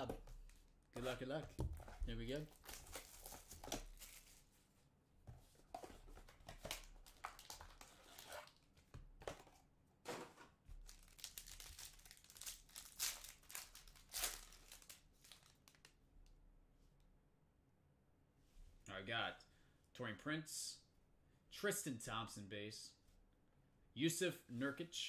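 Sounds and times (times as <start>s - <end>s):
foil wrapper crinkling and tearing: 10.8s - 15.9s.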